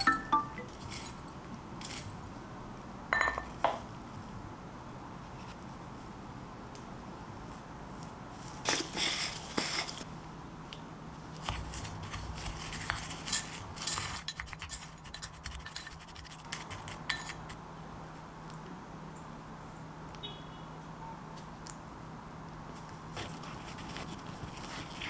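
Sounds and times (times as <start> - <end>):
spoon tapping ceramic ramekin: 0.0 - 0.7, 3.2 - 3.5.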